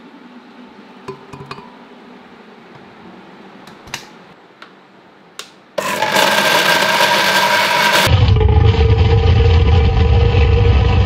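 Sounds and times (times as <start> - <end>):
blender motor whining: 5.8 - 11.0.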